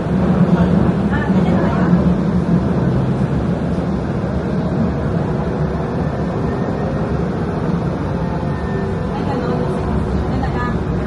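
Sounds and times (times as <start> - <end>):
moving vehicle rumble: 0.0 - 11.0
faint steady tones: 1.3 - 11.0.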